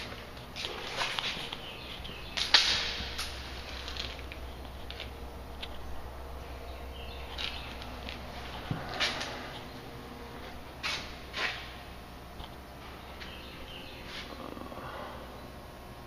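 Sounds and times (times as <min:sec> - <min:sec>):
scuffs on gritty floor: 0:00.0 - 0:06.0, 0:07.0 - 0:11.9.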